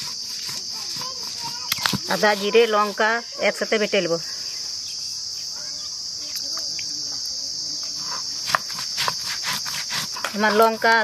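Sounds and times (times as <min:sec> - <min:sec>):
stone roller grinding on stone: 0:00.0 - 0:03.2, 0:08.0 - 0:11.0
insects chirring: 0:00.0 - 0:11.0.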